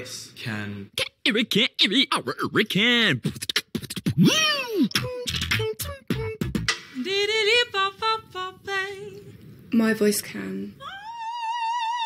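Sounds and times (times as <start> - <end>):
man beatboxing: 1.0 - 6.8
woman scat singing: 3.7 - 9.0.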